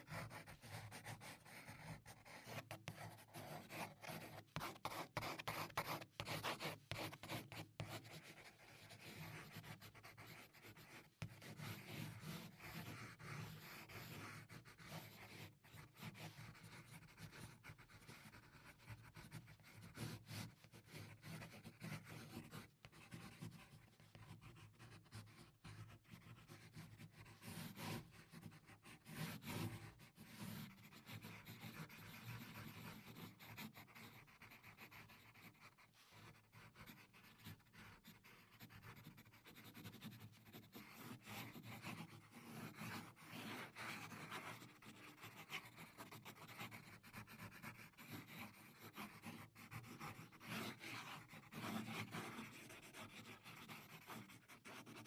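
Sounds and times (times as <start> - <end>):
pencil scratching on paper: 0.0 - 55.0.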